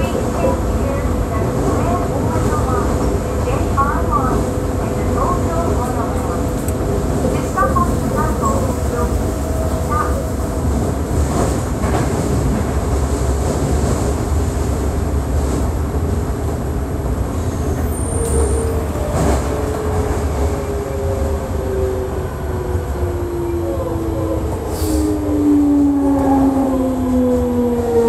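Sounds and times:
subway train rumble: 0.0 - 28.0.

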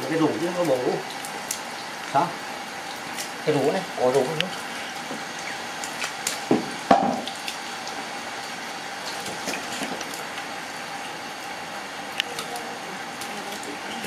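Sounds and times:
fish splashing into water: 0.0 - 11.6
water running from hose: 0.0 - 14.0
fish slapping on wet floor: 3.0 - 8.0, 9.0 - 11.1.

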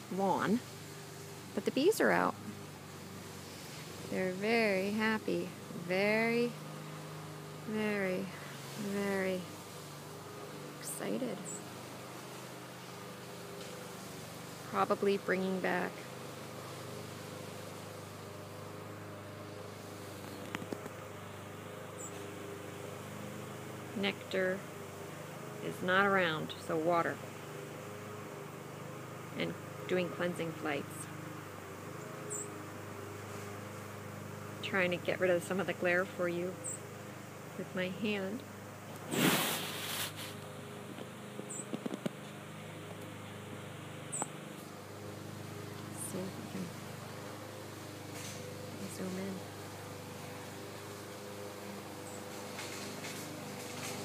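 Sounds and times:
distant lawn mower engine: 0.0 - 54.0
honeybees buzzing: 0.0 - 54.0
hand rustling against microphone: 39.1 - 40.4.

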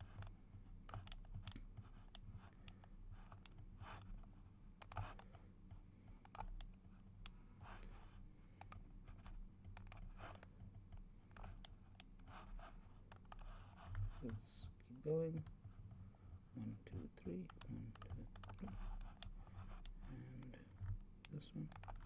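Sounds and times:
mouse and keyboard clicks: 0.0 - 4.1, 6.2 - 7.4, 8.6 - 12.4
low steady hum: 0.0 - 22.0.

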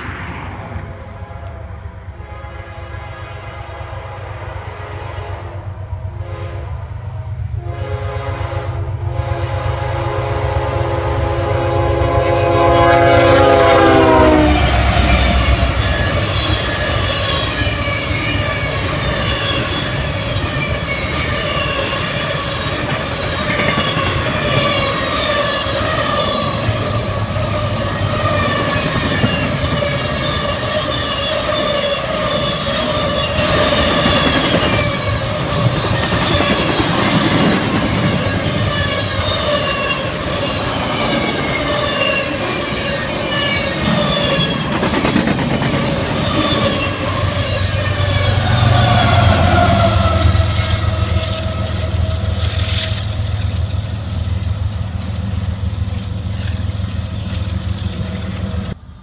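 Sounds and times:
freight train wheels rumbling: 0.0 - 59.0
high wheel squealing: 14.5 - 53.2.

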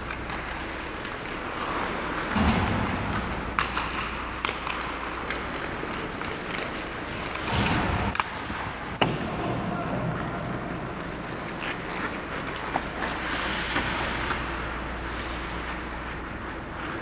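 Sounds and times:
skate blades scraping ice: 0.0 - 9.2, 10.1 - 17.0
sticks clacking on puck: 0.0 - 17.0.

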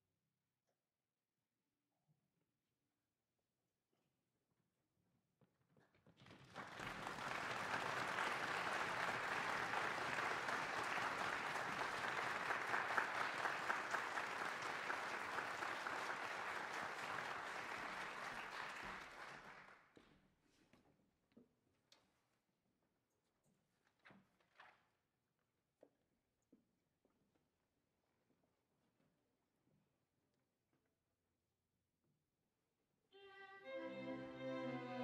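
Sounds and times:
audience applauding: 6.3 - 19.8.

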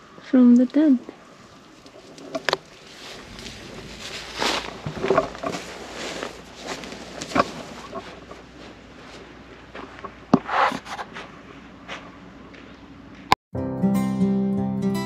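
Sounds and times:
rustling: 1.4 - 12.1.

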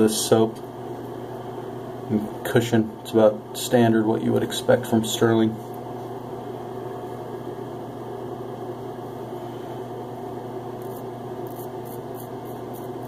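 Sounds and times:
steady low hum: 0.0 - 13.0
razor scraping stubble: 10.8 - 13.0.

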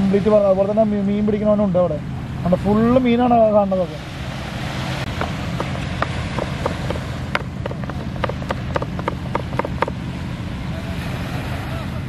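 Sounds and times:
low background rumble: 4.2 - 10.8
knife chopping on cutting board: 5.1 - 10.0.

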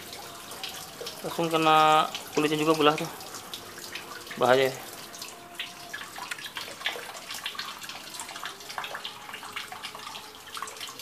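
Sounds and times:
water dripping: 0.0 - 11.0
water splashing in a tub: 0.0 - 11.0.

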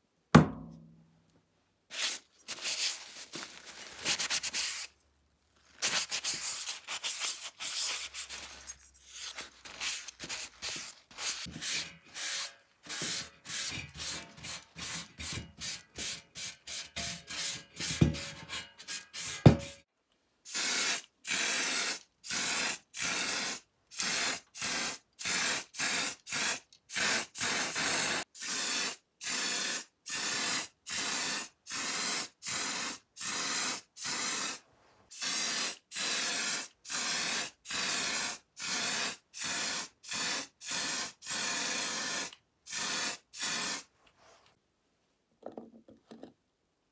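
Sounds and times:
sharp knocks: 0.4 - 0.9
spray can hissing: 9.8 - 18.3, 20.5 - 43.9.

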